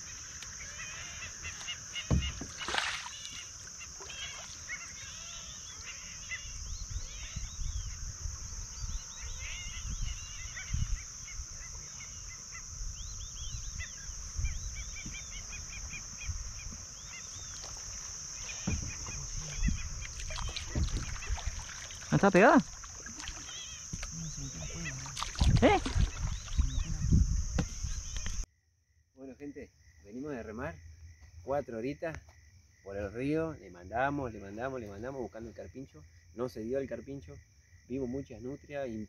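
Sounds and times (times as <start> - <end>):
birds chirping: 0.0 - 28.5
kayak paddle knocks: 2.1 - 2.8, 18.4 - 21.6.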